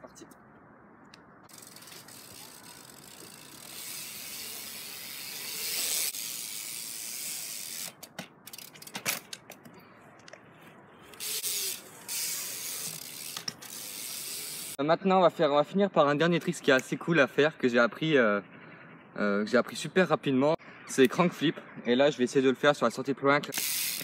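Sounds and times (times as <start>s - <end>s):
bike tyres rolling on concrete: 1.5s - 9.6s, 10.2s - 14.8s.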